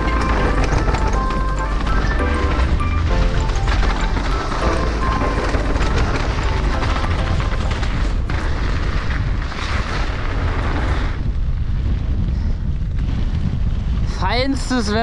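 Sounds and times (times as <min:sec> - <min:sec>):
background music: 0:00.0 - 0:08.3
mountain bike clattering on trail: 0:00.0 - 0:11.3
wind rumble on microphone: 0:00.0 - 0:15.0.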